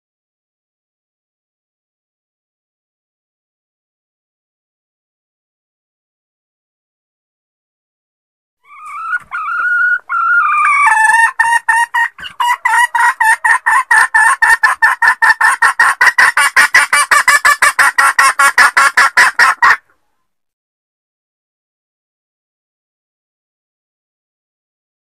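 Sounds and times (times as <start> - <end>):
hen cackling: 8.6 - 20.0.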